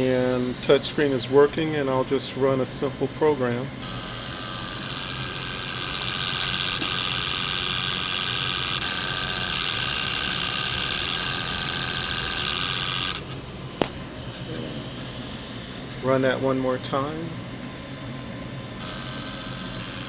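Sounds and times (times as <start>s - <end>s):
servo motors whining: 3.8s - 13.4s, 18.8s - 20.0s.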